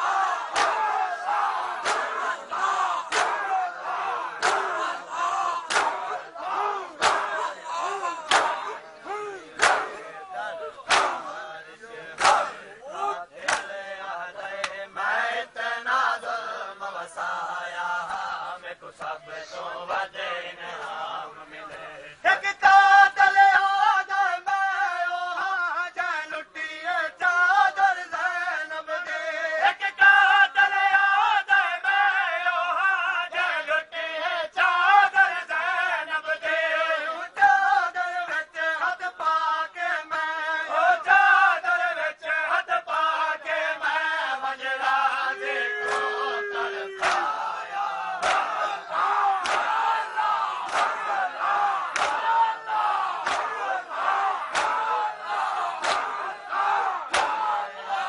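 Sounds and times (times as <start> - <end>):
mourners chanting together: 0.0 - 58.0
chest-beating slaps: 0.5 - 0.8, 1.8 - 2.2, 3.1 - 3.5, 4.4 - 4.9, 5.6 - 6.2, 7.0 - 7.5, 8.2 - 8.8, 9.6 - 10.1, 10.9 - 11.3, 12.2 - 12.6, 13.4 - 13.7, 45.8 - 46.2, 47.0 - 47.3, 48.2 - 48.6, 49.4 - 49.8, 50.7 - 51.0, 51.9 - 52.2, 53.2 - 53.6, 54.5 - 54.8, 55.8 - 56.2, 57.1 - 57.4.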